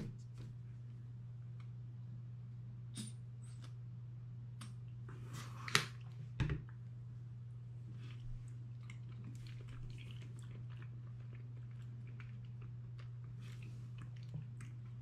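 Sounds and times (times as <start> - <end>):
steady low hum: 0.0 - 15.0
person chewing wetly: 7.9 - 15.0.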